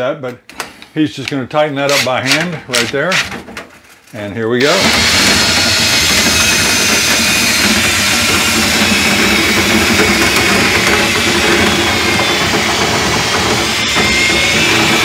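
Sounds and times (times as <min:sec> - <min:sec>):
cordless drill whining: 0:04.7 - 0:15.0.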